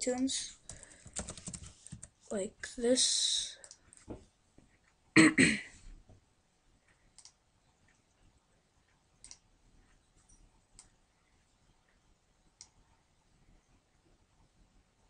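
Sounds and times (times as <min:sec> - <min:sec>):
computer mouse clicks: 0:03.6 - 0:04.0, 0:07.1 - 0:07.4, 0:09.2 - 0:09.5.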